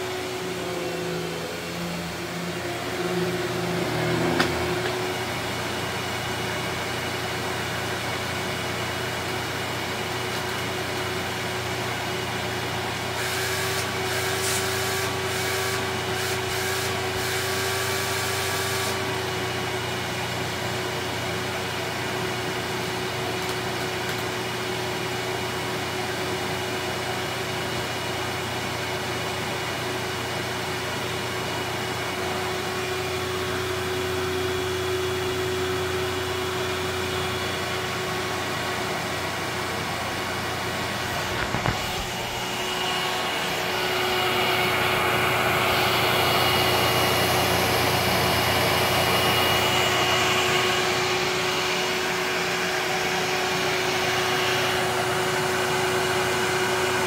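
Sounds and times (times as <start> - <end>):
vacuum cleaner running: 0.0 - 57.0.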